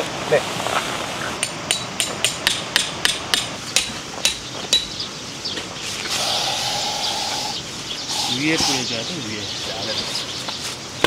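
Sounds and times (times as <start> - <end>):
steady hiss: 0.0 - 11.0
hammer striking metal peg: 1.4 - 4.9.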